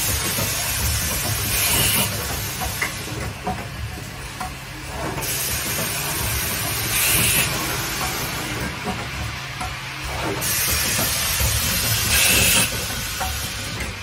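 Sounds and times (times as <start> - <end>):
machine clicks and clatter: 0.0 - 14.0
compressed air hiss: 5.2 - 8.4.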